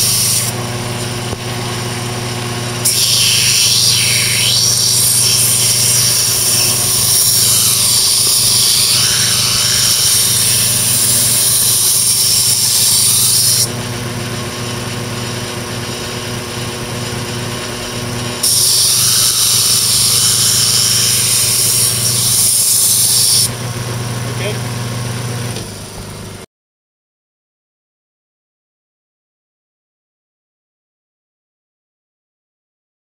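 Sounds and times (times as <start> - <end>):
blade grinding on belt: 0.0 - 0.6, 2.8 - 14.6, 15.4 - 23.5
belt grinder motor hum: 0.0 - 26.4.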